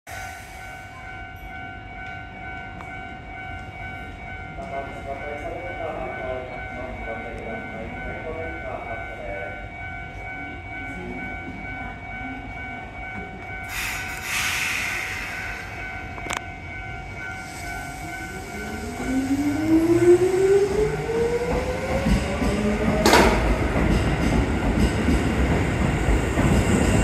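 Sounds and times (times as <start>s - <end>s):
air hissing: 13.7s - 15.7s.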